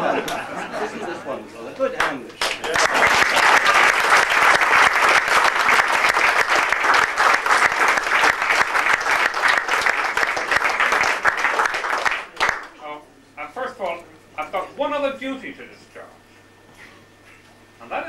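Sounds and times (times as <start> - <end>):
audience applauding: 2.0 - 12.8.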